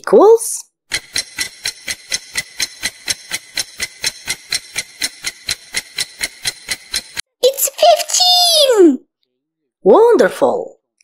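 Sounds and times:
clock ticking: 0:00.9 - 0:07.2.

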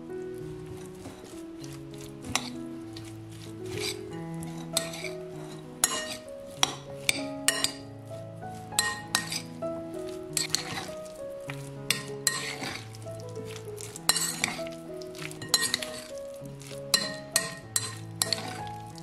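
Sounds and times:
background music: 0:00.0 - 0:19.0
cutlery clinking against glass bowl: 0:02.2 - 0:03.1, 0:03.7 - 0:07.9, 0:08.8 - 0:09.5, 0:10.4 - 0:11.0, 0:11.6 - 0:12.8, 0:13.5 - 0:16.1, 0:16.9 - 0:18.8.

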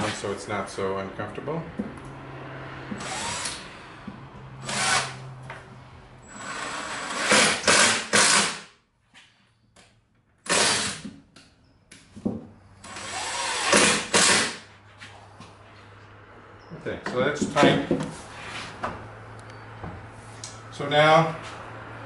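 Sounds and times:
power drill driving screws: 0:03.0 - 0:03.6, 0:04.6 - 0:05.2, 0:06.2 - 0:08.7, 0:10.4 - 0:11.1, 0:12.8 - 0:14.6.

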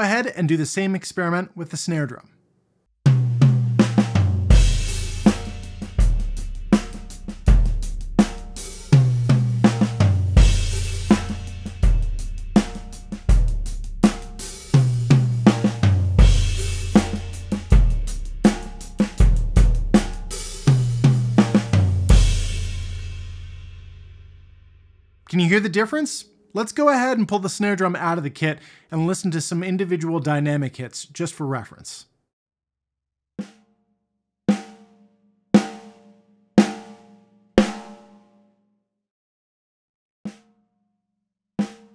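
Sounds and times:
drum kit playing a groove: 0:03.1 - 0:24.0, 0:37.6 - 0:38.0
snare drum hits: 0:09.7 - 0:12.0, 0:15.5 - 0:19.4, 0:20.0 - 0:20.8.

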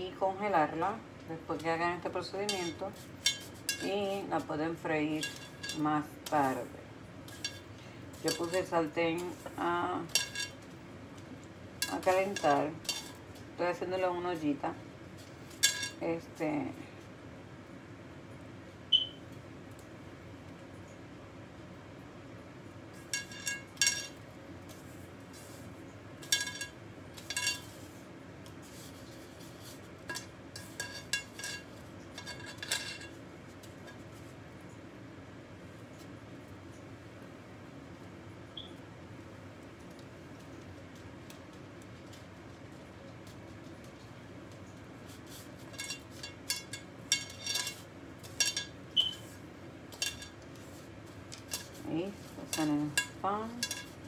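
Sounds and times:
utensil clinking on ceramic bowl: 0:02.4 - 0:04.2, 0:07.3 - 0:08.7, 0:45.7 - 0:49.2, 0:51.4 - 0:54.0.

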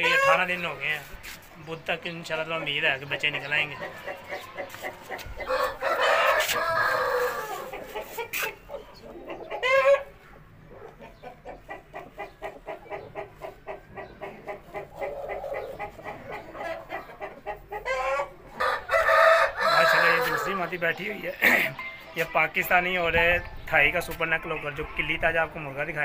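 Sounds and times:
chicken squawk: 0:00.0 - 0:00.6, 0:03.8 - 0:20.6
chickens clucking: 0:00.0 - 0:26.0
rooster crowing: 0:05.4 - 0:07.7, 0:18.6 - 0:20.6.

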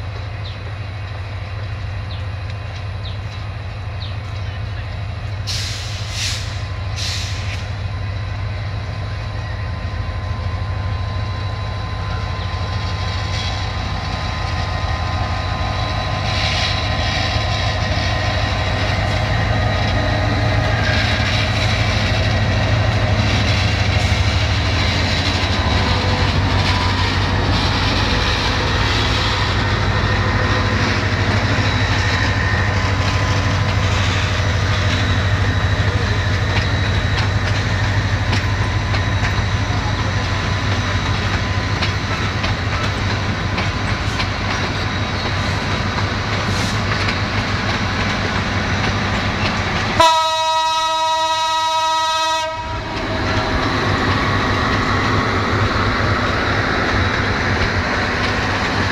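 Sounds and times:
train rumble: 0:00.0 - 0:58.9
train wheels clicking over rail joints: 0:12.7 - 0:50.2, 0:52.6 - 0:58.9.

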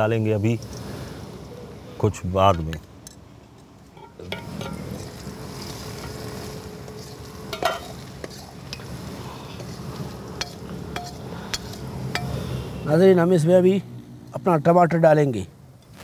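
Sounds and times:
metal ladle scraping pan: 0:04.0 - 0:12.5
onions sizzling in hot fat: 0:04.2 - 0:13.0
ladle clinking against pan: 0:07.5 - 0:08.0.

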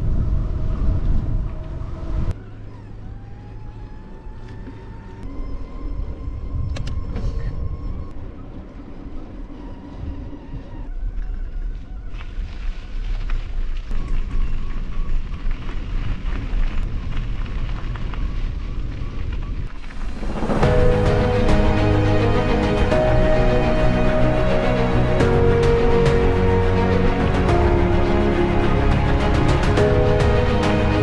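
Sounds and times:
bike rolling noise: 0:00.0 - 0:21.7
wind rumble: 0:00.0 - 0:31.0
music: 0:20.2 - 0:31.0.

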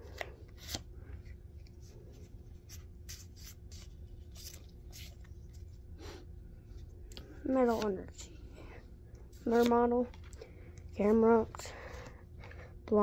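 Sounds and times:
trading cards rustling: 0:00.1 - 0:05.9.

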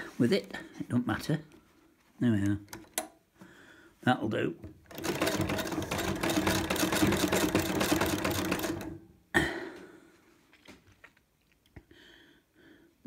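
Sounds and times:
sewing machine stitching: 0:04.6 - 0:09.0.

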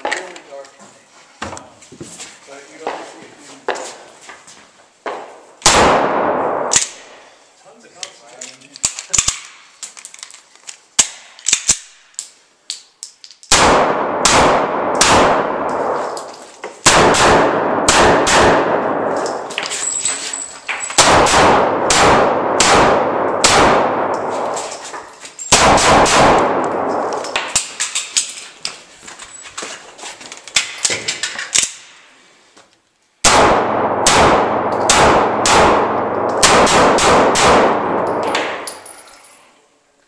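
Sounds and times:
pistol shots echoing: 0:05.6 - 0:07.2, 0:13.5 - 0:16.2, 0:16.8 - 0:19.6, 0:20.9 - 0:24.7, 0:25.5 - 0:27.8, 0:33.2 - 0:38.8
light metallic clinks: 0:19.2 - 0:21.0, 0:38.0 - 0:39.6.

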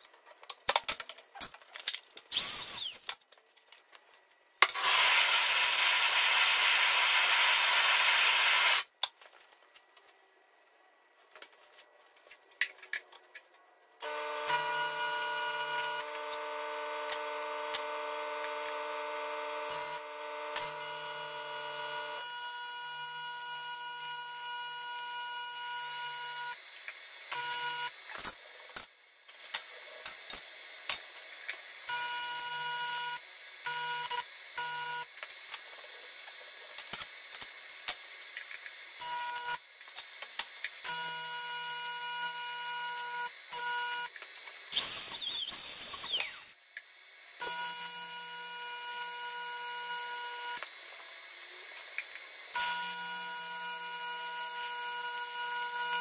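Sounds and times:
welding arc buzzing: 0:02.3 - 0:03.2, 0:04.6 - 0:09.0, 0:14.0 - 0:46.6, 0:47.3 - 0:56.0.

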